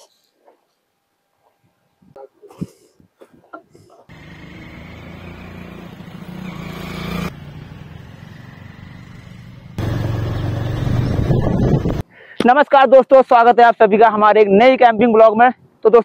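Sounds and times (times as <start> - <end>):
motorcycle engines running: 4.1 - 12.0.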